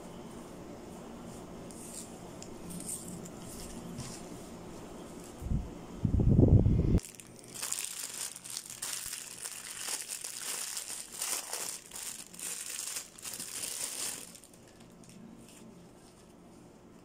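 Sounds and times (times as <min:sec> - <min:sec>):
plastic bag crinkling: 0:07.0 - 0:16.3.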